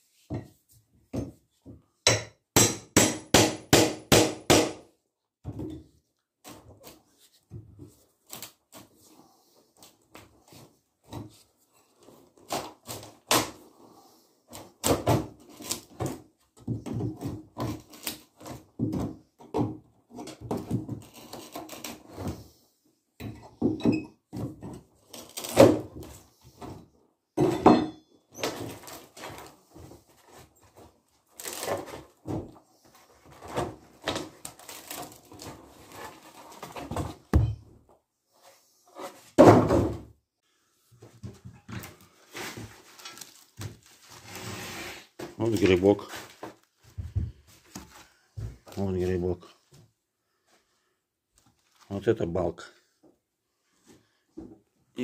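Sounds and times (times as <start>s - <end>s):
crowbar prying floorboards: 1.1s - 4.8s, 14.5s - 22.6s, 23.2s - 32.6s, 33.3s - 37.7s, 39.0s - 40.1s.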